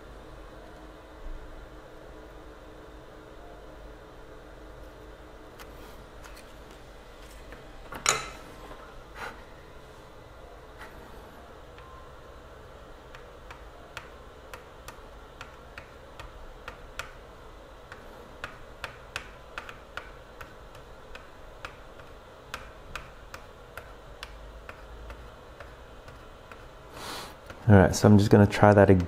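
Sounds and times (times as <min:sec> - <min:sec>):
faint low hum: 0:00.0 - 0:29.0.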